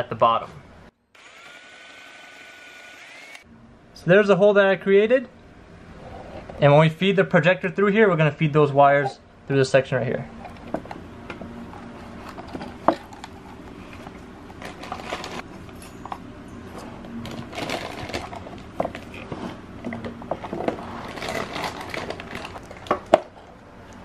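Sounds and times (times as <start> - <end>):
rustling and scraping: 6.0 - 6.6, 10.3 - 23.5.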